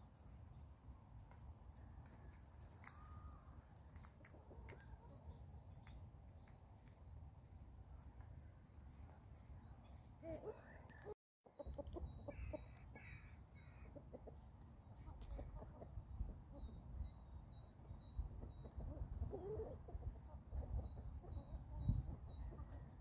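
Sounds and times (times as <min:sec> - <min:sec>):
chickens clucking: 0:02.0 - 0:06.0, 0:10.2 - 0:13.1, 0:13.7 - 0:16.9, 0:18.2 - 0:23.0.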